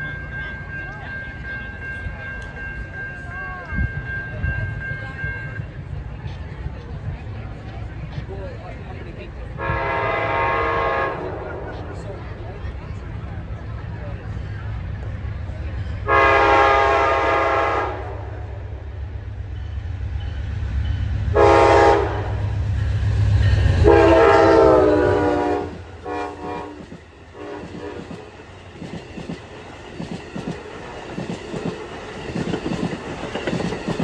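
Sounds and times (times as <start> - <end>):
locomotive horn blasts: 9.6 - 11.4, 16.0 - 18.4, 21.3 - 22.5, 23.8 - 26.8, 27.4 - 28.2
train wheels clattering over rail joints: 28.0 - 34.0.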